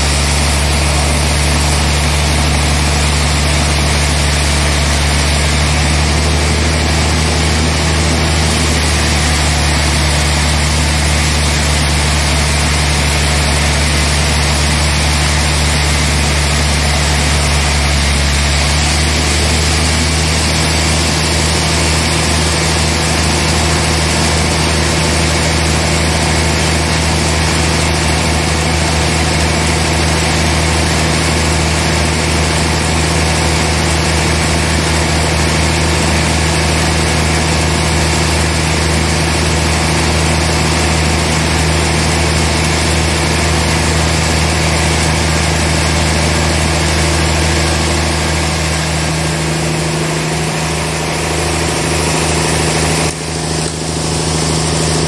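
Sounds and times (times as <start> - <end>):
band saw cutting log: 0.0 - 55.0.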